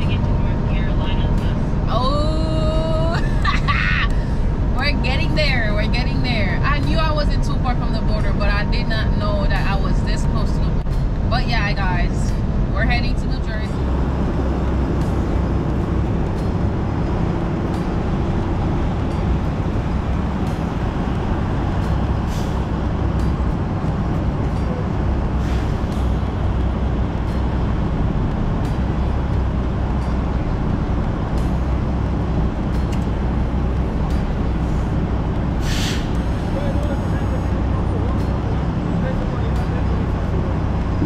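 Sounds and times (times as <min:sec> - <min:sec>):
diesel truck engine rumbling: 0:00.0 - 0:41.0
brief air hiss: 0:35.6 - 0:36.2.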